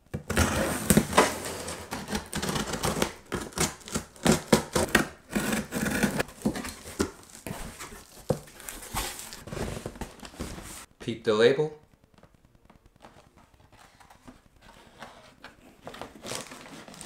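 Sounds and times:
packing tape being slit open: 0:16.0 - 0:17.0.

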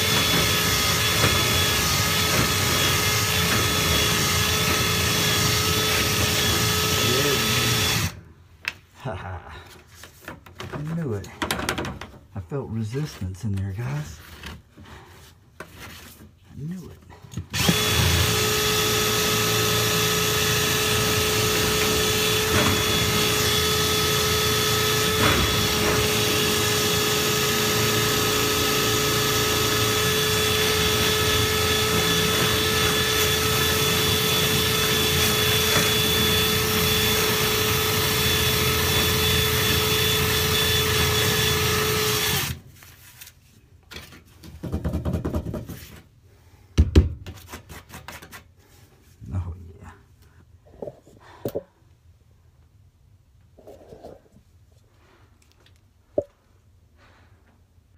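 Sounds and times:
power drill spinning brush: 0:00.0 - 0:08.2, 0:17.5 - 0:43.2.

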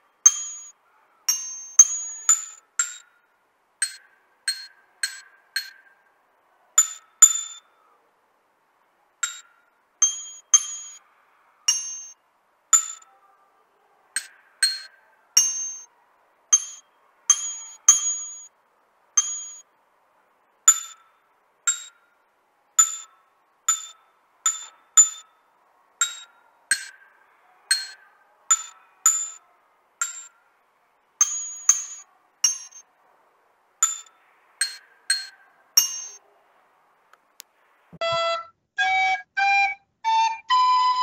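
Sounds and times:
glockenspiel melody: 0:00.3 - 0:00.7, 0:01.3 - 0:02.6, 0:10.0 - 0:11.0, 0:11.7 - 0:12.2, 0:14.6 - 0:15.9, 0:16.5 - 0:18.5, 0:19.2 - 0:19.6, 0:31.2 - 0:32.8, 0:33.8 - 0:36.2.

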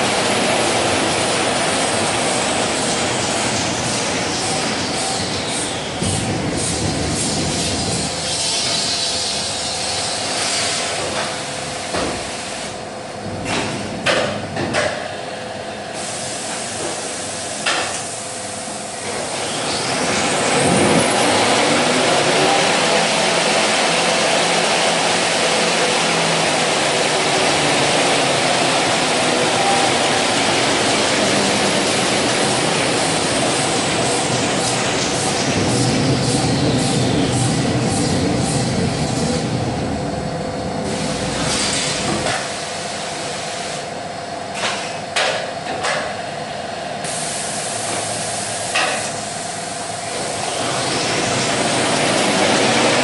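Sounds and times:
machine humming: 0:18.3 - 0:43.2
rush of machinery: 0:19.0 - 0:43.4, 0:47.1 - 0:53.0.

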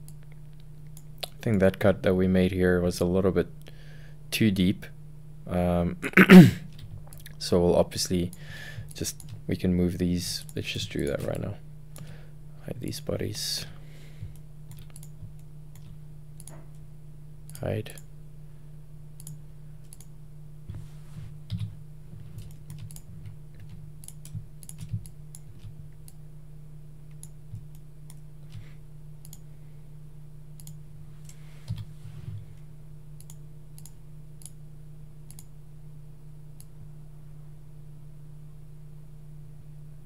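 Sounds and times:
steady low hum: 0:00.0 - 0:40.0
keyboard and mouse clicks: 0:14.3 - 0:16.8, 0:22.4 - 0:26.2, 0:30.6 - 0:31.9, 0:33.2 - 0:34.6, 0:35.3 - 0:35.5.

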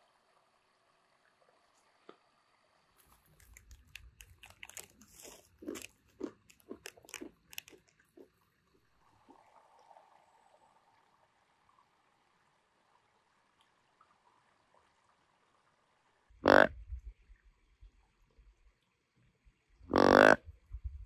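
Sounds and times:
person chewing peanuts: 0:03.0 - 0:08.4.

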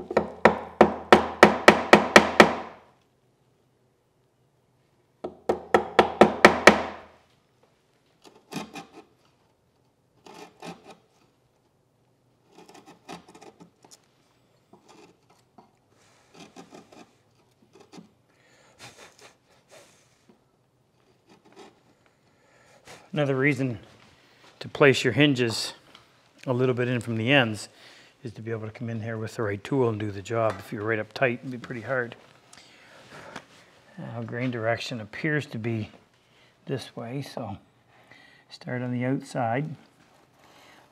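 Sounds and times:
chisel tapping into wood: 0:00.0 - 0:02.8, 0:05.2 - 0:07.1
chisel scraping wood: 0:08.2 - 0:09.2, 0:10.2 - 0:11.3, 0:12.4 - 0:14.0, 0:14.7 - 0:18.2, 0:21.0 - 0:22.0.

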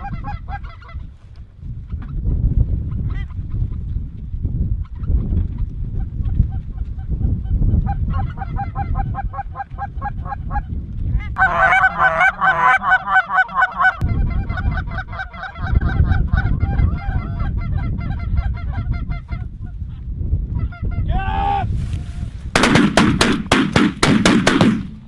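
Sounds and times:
geese honking: 0:11.4 - 0:19.4.

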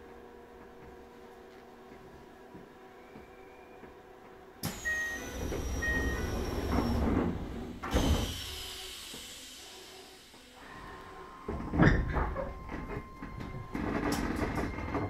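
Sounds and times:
train doors sliding: 0:04.6 - 0:15.0
falling high whistle: 0:04.7 - 0:07.0.

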